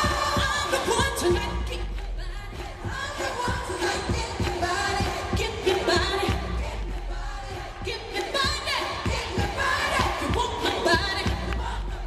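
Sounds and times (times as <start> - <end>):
person singing into microphone: 0.0 - 6.6.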